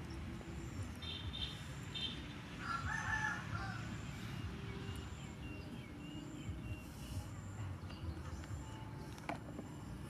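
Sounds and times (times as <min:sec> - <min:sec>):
rooster crowing: 0:02.6 - 0:03.9.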